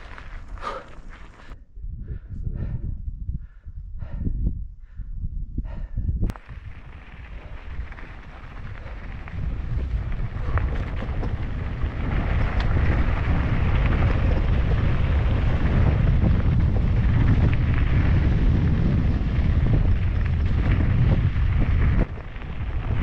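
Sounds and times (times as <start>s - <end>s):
bike clicks and rattles: 0.0s - 1.6s, 6.3s - 23.0s
wind rumbling on microphone: 0.0s - 23.0s.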